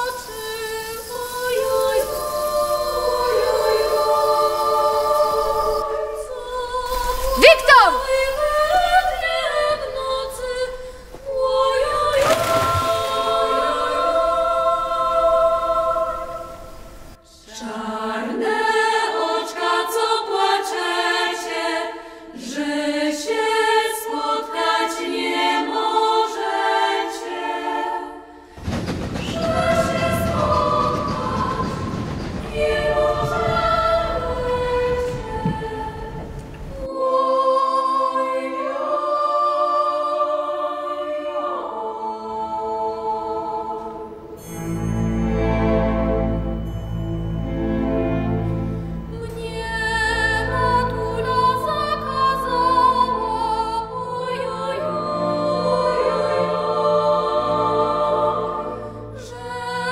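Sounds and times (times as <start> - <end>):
women's choir singing: 0.0 - 44.7, 45.3 - 59.9.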